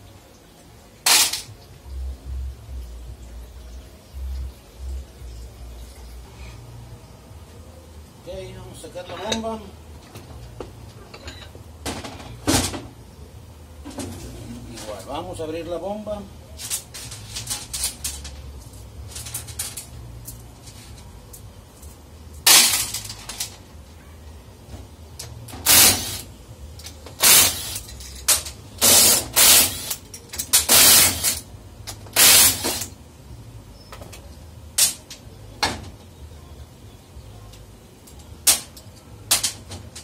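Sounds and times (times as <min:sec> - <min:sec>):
impact wrench bursts: 0:25.6 - 0:26.3, 0:27.2 - 0:27.9, 0:28.8 - 0:31.4, 0:32.2 - 0:32.9.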